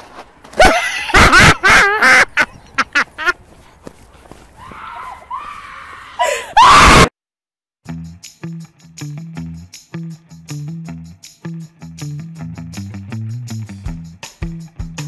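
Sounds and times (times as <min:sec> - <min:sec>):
person shrieking and laughing: 0:00.6 - 0:02.5, 0:04.6 - 0:07.1
guitar tune: 0:07.9 - 0:14.1.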